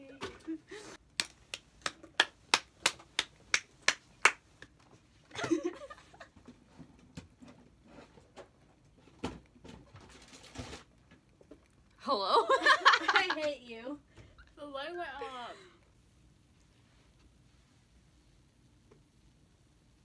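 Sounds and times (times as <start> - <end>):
rhythmic hand claps: 1.2 - 4.8.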